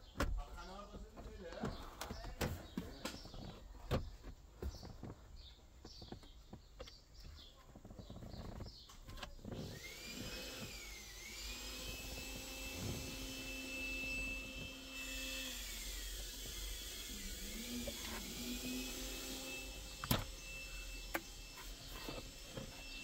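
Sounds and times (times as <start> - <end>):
motor whining: 9.4 - 23.0.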